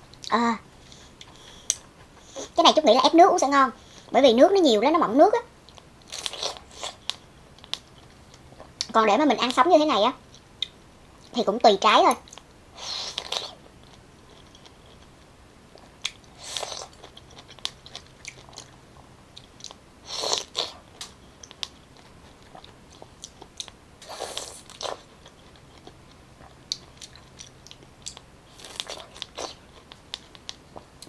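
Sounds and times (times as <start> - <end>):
person biting and chewing pineapple: 5.7 - 7.1, 19.4 - 31.0.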